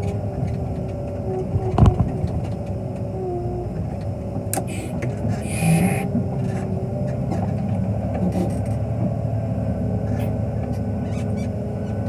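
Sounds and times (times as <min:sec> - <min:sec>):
diesel engine running from inside cab: 0:00.0 - 0:12.0.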